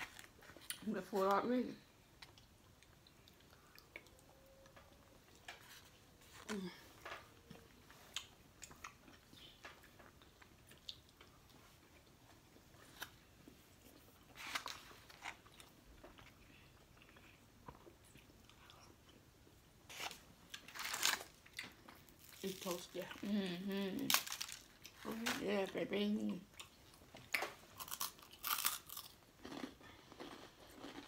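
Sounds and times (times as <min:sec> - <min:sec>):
person chewing: 0:26.5 - 0:31.0.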